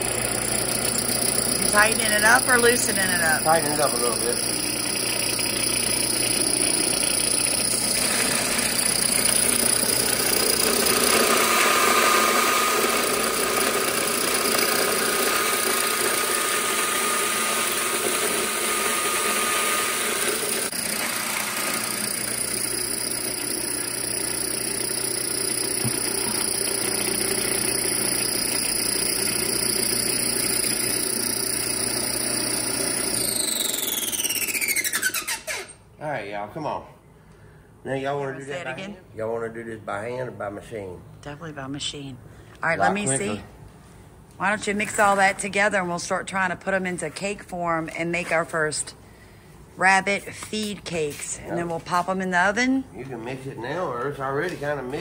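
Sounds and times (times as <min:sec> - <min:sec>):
electric grain mill grinding: 0:00.0 - 0:35.8
motor whine spinning down: 0:00.0 - 0:35.8.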